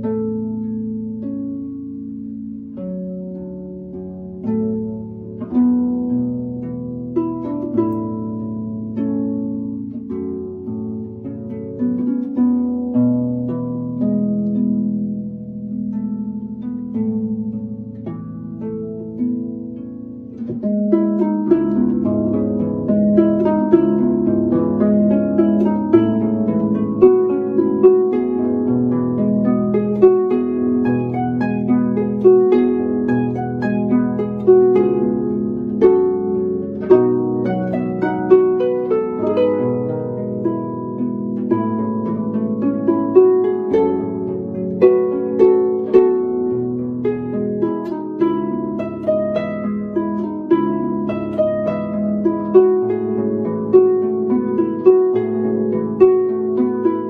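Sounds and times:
plucked string melody: 0.0s - 57.0s.

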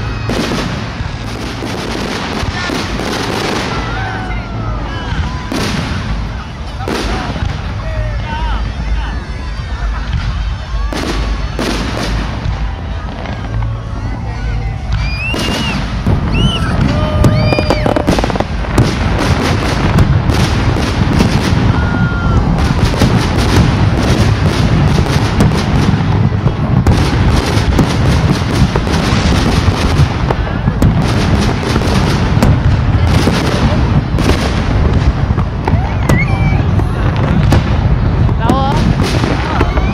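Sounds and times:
firework crackling bangs: 0.0s - 39.9s
firework whistling: 0.0s - 39.9s
firework shells booming: 14.8s - 39.9s.

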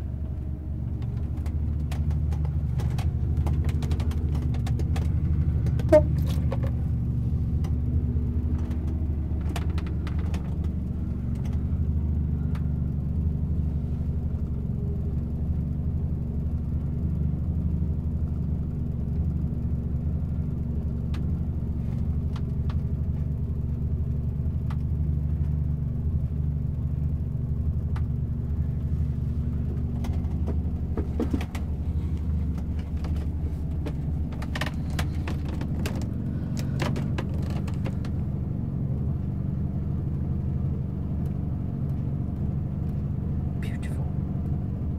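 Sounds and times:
low mechanical rumble: 0.0s - 44.9s
short squeak: 5.8s - 6.8s
light clicks and knocks: 29.5s - 38.2s.

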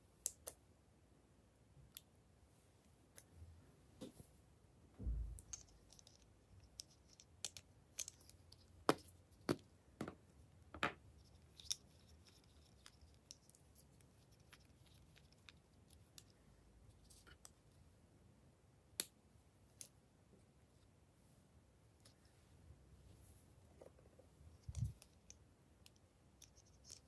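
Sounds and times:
soft low thump: 5.0s - 5.4s.

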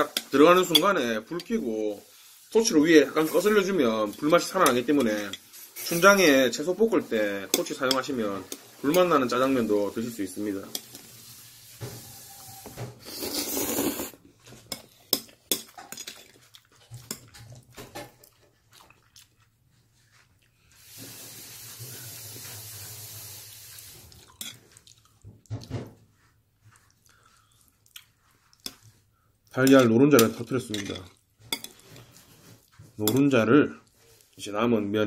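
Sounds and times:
long steady hiss: 0.0s - 14.1s, 20.8s - 24.2s
noodles slurped loudly: 13.0s - 14.2s
chewing: 13.1s - 20.8s, 24.1s - 25.6s, 26.6s - 29.6s, 30.8s - 32.8s.

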